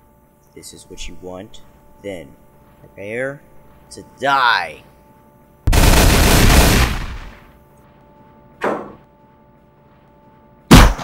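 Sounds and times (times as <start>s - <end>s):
gunshots: 5.7s - 7.5s, 10.7s - 11.0s.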